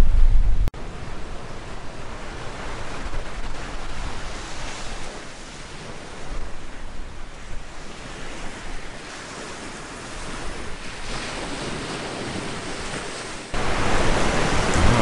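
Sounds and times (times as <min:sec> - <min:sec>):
wind rumbling on microphone: 0:00.0 - 0:15.0
surf washing on beach: 0:00.8 - 0:15.0.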